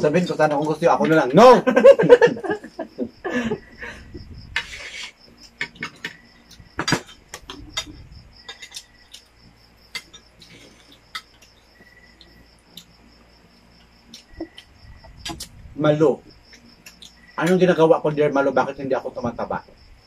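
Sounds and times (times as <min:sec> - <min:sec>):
cricket chirping: 0:00.0 - 0:20.0
dishes and spoon clinking: 0:05.5 - 0:09.3.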